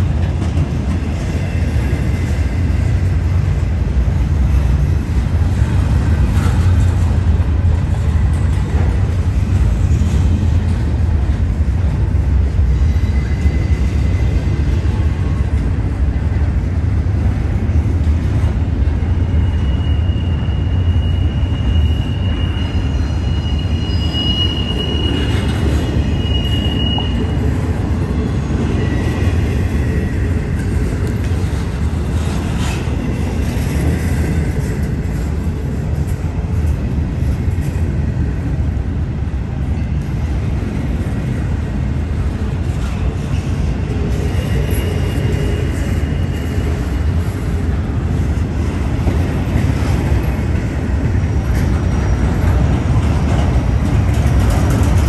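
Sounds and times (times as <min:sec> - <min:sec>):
freight train rumbling on rails: 0:00.0 - 0:55.0
high wheel squeal: 0:19.1 - 0:27.6.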